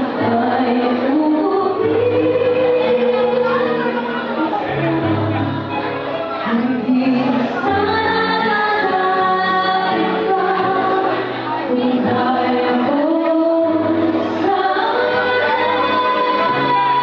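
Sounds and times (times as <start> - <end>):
woman singing a slow ballad: 0.0 - 5.4, 6.4 - 17.0.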